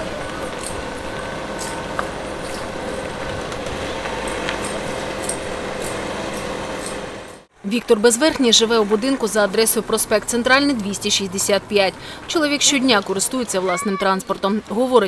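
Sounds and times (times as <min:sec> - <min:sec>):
distant traffic hum: 0:00.0 - 0:15.0.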